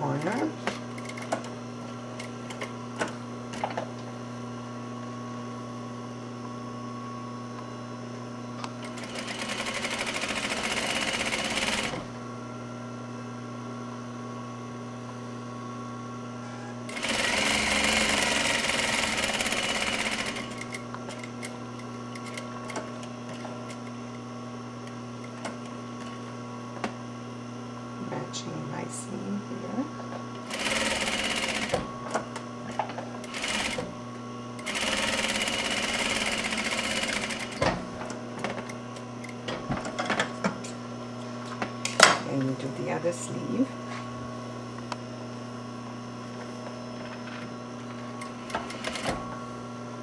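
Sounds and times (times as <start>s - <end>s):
sewing machine motor humming: 0.0s - 3.8s, 8.7s - 12.1s, 16.9s - 24.0s, 30.4s - 31.9s, 33.2s - 33.9s, 34.6s - 37.6s, 48.2s - 49.2s
sewing machine stitching: 8.8s - 12.0s, 16.9s - 21.3s, 30.4s - 31.8s, 33.2s - 33.8s, 34.6s - 37.6s.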